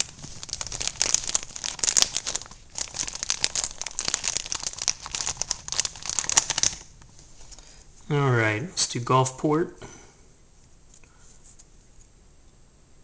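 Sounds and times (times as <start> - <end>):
paper rustling and crinkling: 0.0 - 7.6.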